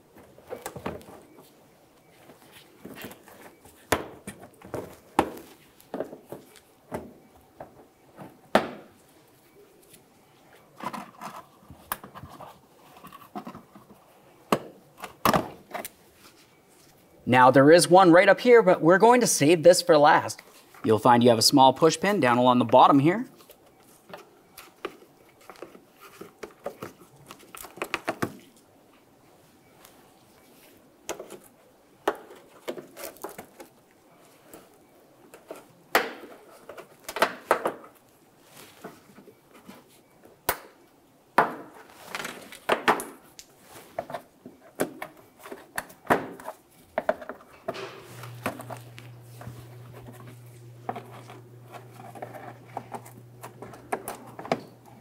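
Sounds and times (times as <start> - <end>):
steady low hum: 47.7 - 55.0.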